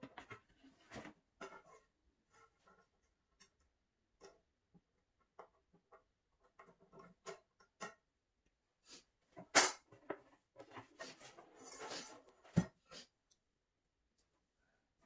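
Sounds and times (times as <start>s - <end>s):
panels scraping and rustling: 0.0s - 3.5s, 9.3s - 13.1s.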